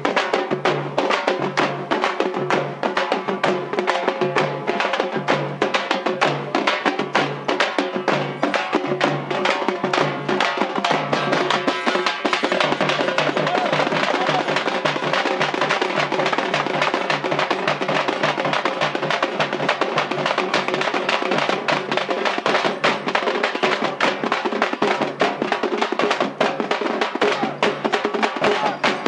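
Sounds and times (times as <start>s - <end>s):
frame drums beaten with sticks: 0.0s - 29.0s.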